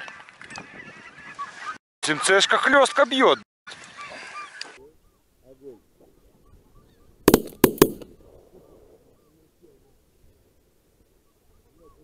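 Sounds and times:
shotgun shots: 7.3 - 8.2.

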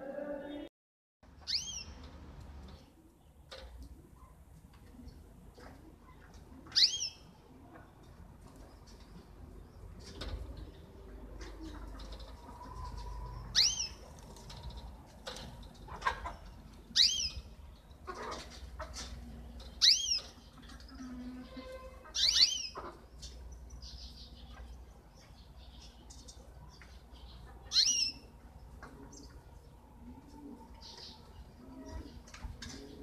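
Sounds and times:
finch calls: 1.5 - 1.9, 13.5 - 14.0, 17.0 - 17.4, 19.8 - 20.4, 22.1 - 22.9, 27.7 - 28.2.

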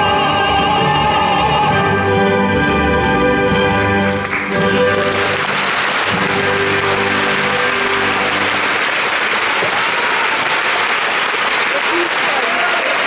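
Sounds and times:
audience applause: 4.0 - 13.0.

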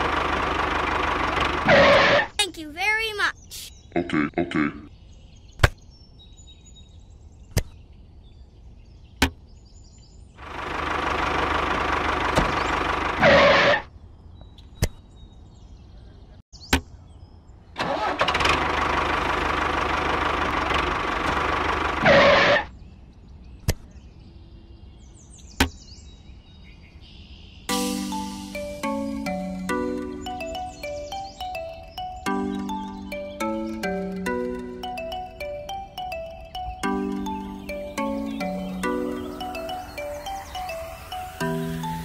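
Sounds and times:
small engine running: 0.0 - 2.3, 10.4 - 13.8, 17.8 - 22.6.

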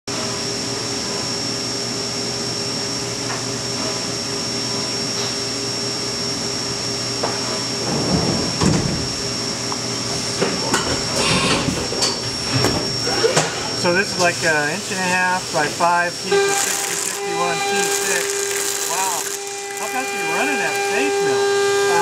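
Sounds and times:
milling machine hum and whine: 0.1 - 22.0.

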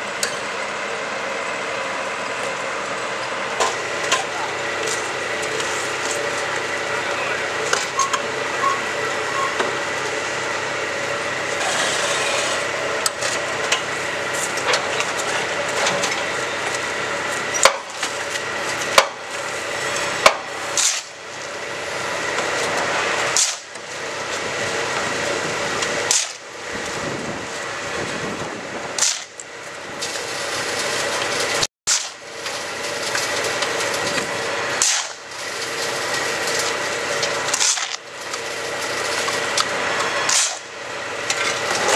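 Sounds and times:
machine mechanical hum: 0.0 - 41.9
sharp metal clanks: 40.3 - 40.7.

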